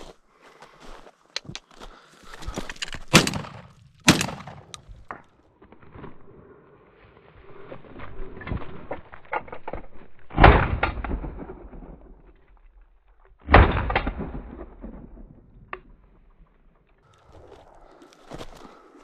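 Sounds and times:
footsteps crunching on stony snow: 0.0s - 3.9s, 17.1s - 19.0s
shotgun shots with echo: 3.1s - 4.7s.

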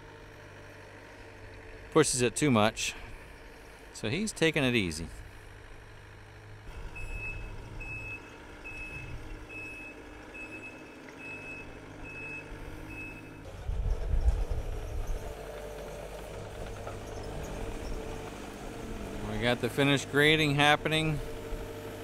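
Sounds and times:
diesel engine running: 0.0s - 22.0s
backup alarm beeping: 6.9s - 13.4s.

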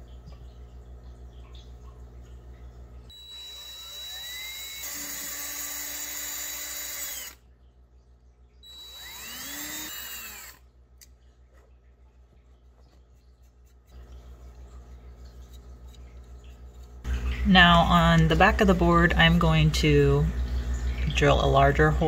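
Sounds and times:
cordless drill drilling into wood: 3.1s - 7.4s, 8.7s - 10.6s.

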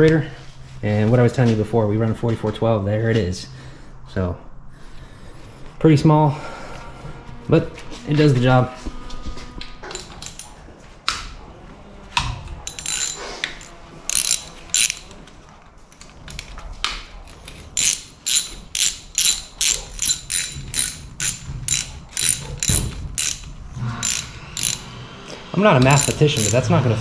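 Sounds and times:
ratchet wrench clicking: 9.9s - 10.5s, 12.7s - 15.2s, 17.4s - 24.9s, 25.8s - 26.7s.

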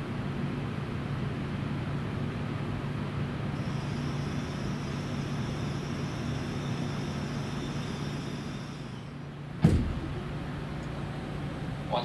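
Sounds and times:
faint high whine: 3.6s - 9.3s.

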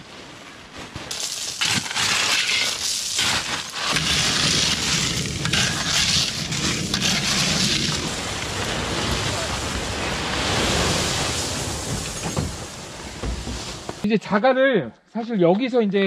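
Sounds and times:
gravel clattering from a sack: 0.8s - 8.6s.

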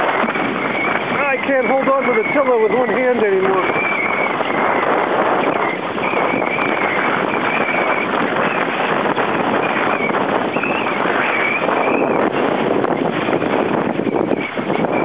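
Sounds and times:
water slapping against hull: 0.0s - 15.0s
wind rushing over microphone: 0.0s - 15.0s
wavering high whistle: 0.5s - 12.3s.

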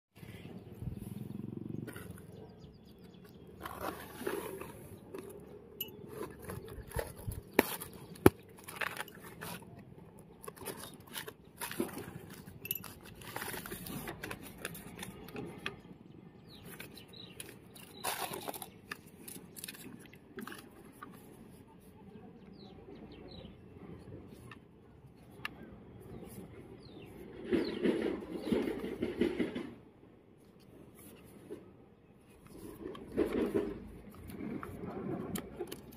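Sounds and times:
cardboard and paper rustling: 3.5s - 15.9s, 16.6s - 21.9s.

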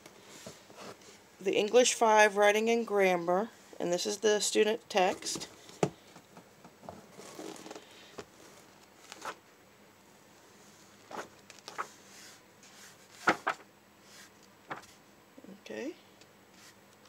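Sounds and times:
book pages flipping: 7.0s - 9.4s, 11.0s - 15.0s.

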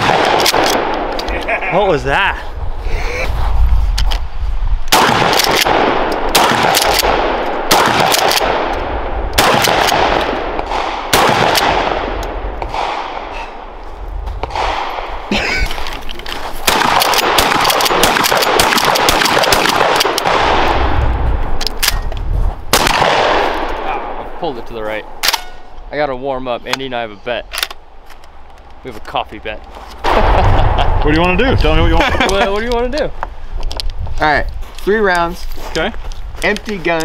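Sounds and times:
shotgun shots echoing: 0.0s - 1.1s, 4.9s - 13.6s, 14.4s - 15.3s, 16.6s - 21.0s, 22.7s - 24.2s.

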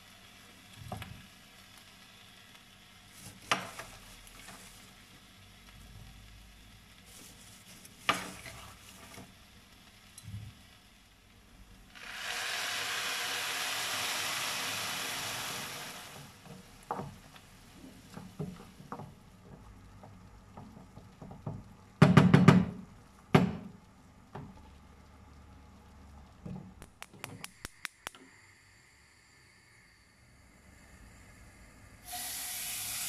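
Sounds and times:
rice sizzling in frying pan: 0.0s - 22.0s, 32.0s - 33.0s
spatula knocking on pan: 18.1s - 23.7s.

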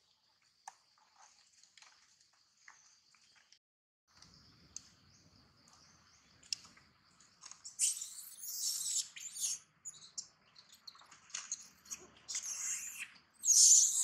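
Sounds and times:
young monkey screaming: 7.8s - 9.6s, 12.3s - 14.0s.

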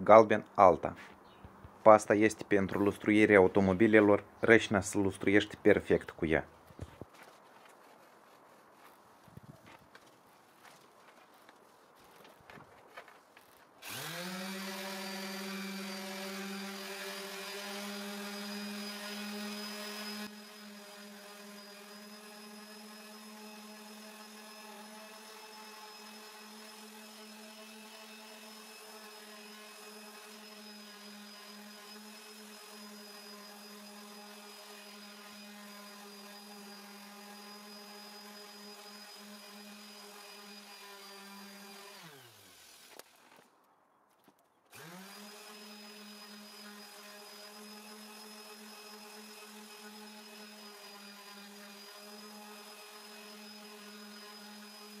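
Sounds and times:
electric polisher running: 13.8s - 43.0s, 44.7s - 55.0s.

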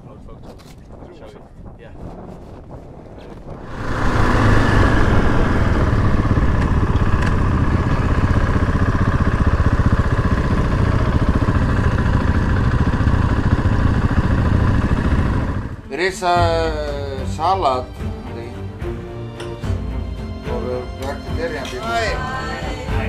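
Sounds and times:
dirt bike engine running: 3.6s - 15.9s.

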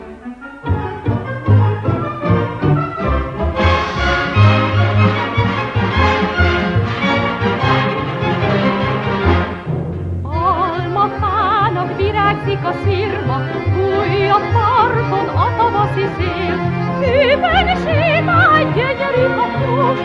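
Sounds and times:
orchestral music: 0.0s - 20.0s.

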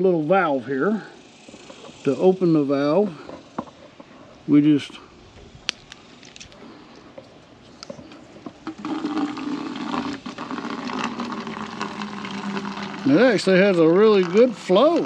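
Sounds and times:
water pouring into plastic bottle: 8.6s - 15.0s.

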